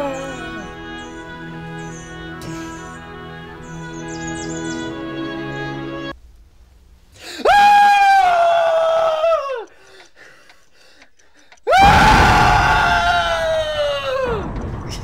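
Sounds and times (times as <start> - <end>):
soft music: 0.0 - 6.2
high-pitched screams: 11.7 - 14.5.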